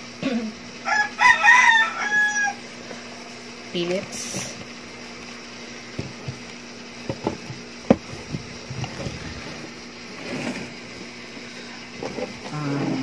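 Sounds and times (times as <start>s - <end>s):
steady low hum: 0.0s - 13.0s
knocks on cardboard box: 7.0s - 8.5s.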